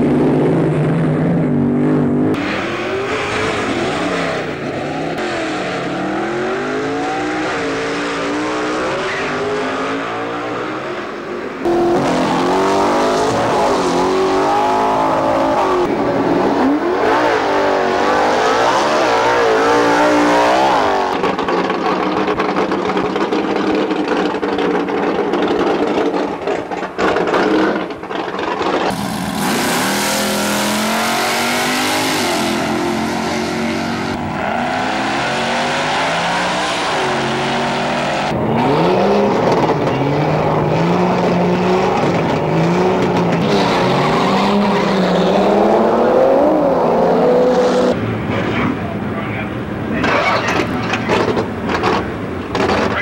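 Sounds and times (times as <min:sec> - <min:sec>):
racing car engines revving: 0:00.0 - 0:53.0.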